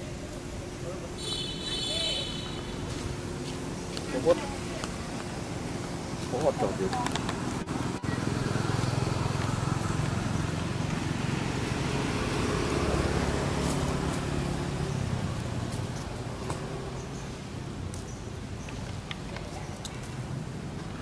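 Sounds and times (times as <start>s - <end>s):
vehicle engine running: 2.4s - 17.8s.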